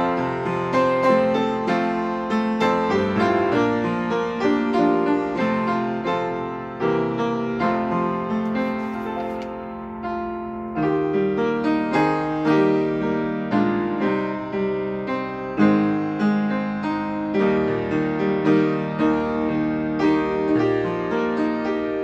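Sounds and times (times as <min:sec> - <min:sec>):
piano playing hymn chords: 0:00.0 - 0:22.0
page turning: 0:08.4 - 0:09.7.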